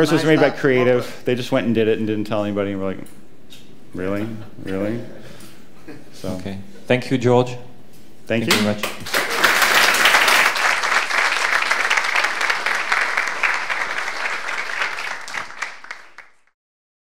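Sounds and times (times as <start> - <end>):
audience applauding: 8.5 - 16.5.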